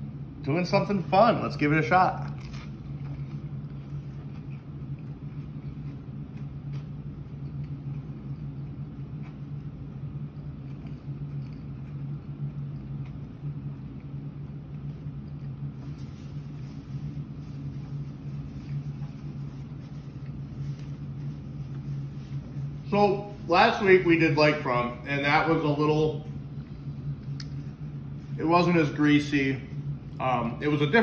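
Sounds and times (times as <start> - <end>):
steady low hum: 0.0 - 31.0
man chewing: 2.2 - 22.8.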